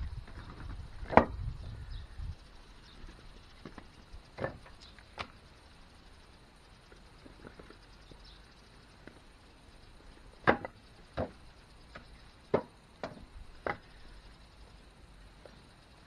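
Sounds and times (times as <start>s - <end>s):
wooden logs knocking: 0.2s - 1.4s, 3.6s - 5.3s, 10.3s - 13.9s.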